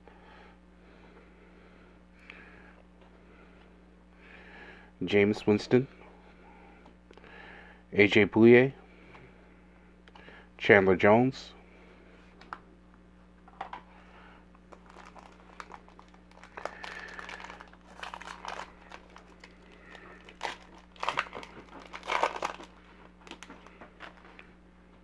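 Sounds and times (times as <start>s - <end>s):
foil pack tearing and crinkling: 14.7s - 24.2s.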